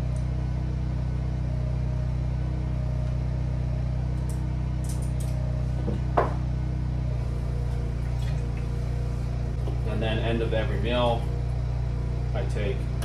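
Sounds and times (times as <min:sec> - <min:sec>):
generator engine humming: 0:00.0 - 0:13.0
short knock: 0:05.9 - 0:06.4.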